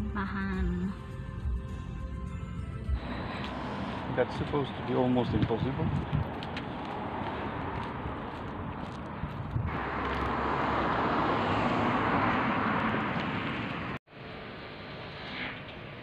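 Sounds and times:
vehicle tyre hiss passing: 0:03.0 - 0:05.0.

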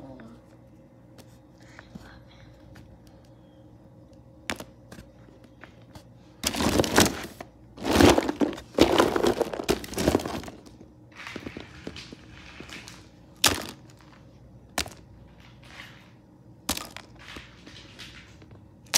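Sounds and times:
plastic figures clattering: 0:06.4 - 0:18.9.

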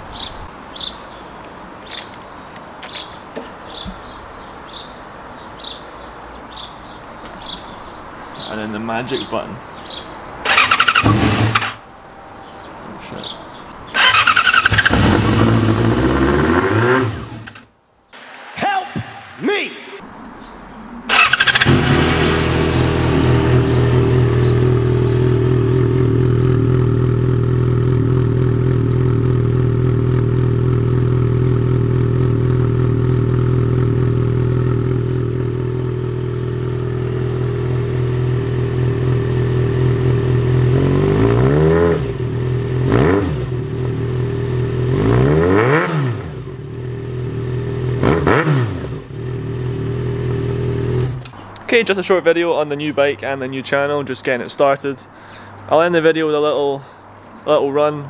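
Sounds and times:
motorcycle engine revving: 0:10.4 - 0:11.8, 0:13.9 - 0:17.7, 0:21.1 - 0:51.4
motorcycle engine idling: 0:21.1 - 0:41.0.

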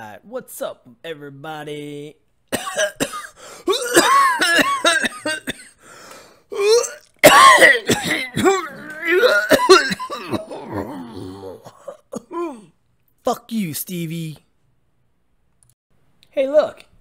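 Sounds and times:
person clearing throat: 0:02.6 - 0:05.8, 0:06.5 - 0:12.8
person coughing: 0:02.6 - 0:05.8, 0:06.5 - 0:12.8.

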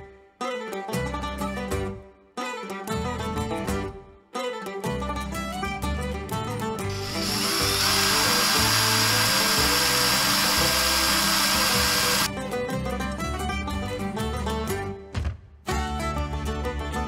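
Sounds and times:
plucked-string background music: 0:00.0 - 0:17.0
power tool whining: 0:06.9 - 0:12.3.

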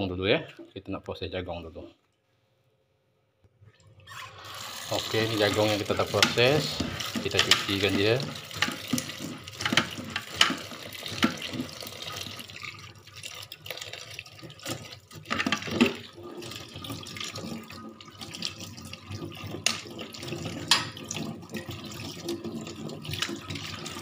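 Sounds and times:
corn kernels rinsed by hand: 0:04.0 - 0:24.0
tap running into metal sink: 0:04.8 - 0:12.2
strainer and bowl clattering: 0:04.9 - 0:12.2, 0:14.4 - 0:16.5, 0:19.3 - 0:24.0.

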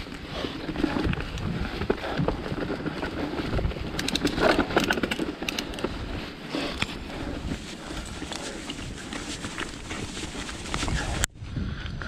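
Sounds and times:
bike clicks and rattles: 0:00.0 - 0:11.3
wind rumble on microphone: 0:00.0 - 0:12.0
bike tyres crunching through leaves: 0:07.0 - 0:11.2.

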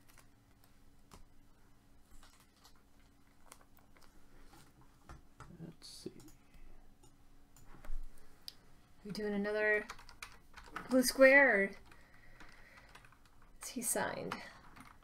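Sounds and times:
faint keyboard clicks: 0:05.1 - 0:07.7.

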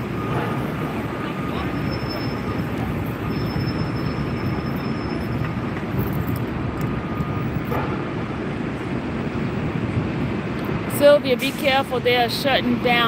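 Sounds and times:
city street rumble: 0:00.0 - 0:13.0
traffic passing: 0:00.0 - 0:13.0.

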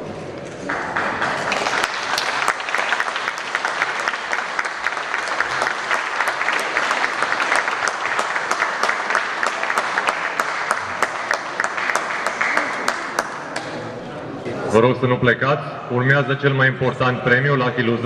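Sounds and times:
audience applauding: 0:00.7 - 0:13.8.

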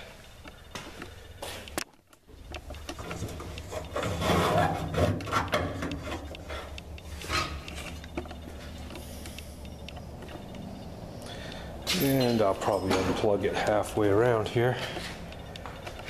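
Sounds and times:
steady low hum: 0:00.0 - 0:16.0
knocks and clicks: 0:01.7 - 0:10.8
work light dragged scraping: 0:03.2 - 0:08.0.

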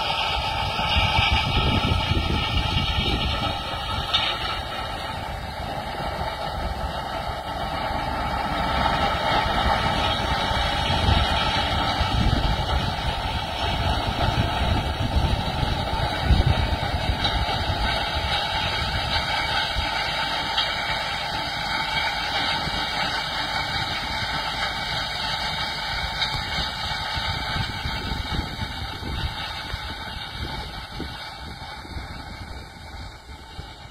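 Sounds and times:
tractor engine running under load: 0:00.0 - 0:33.9.

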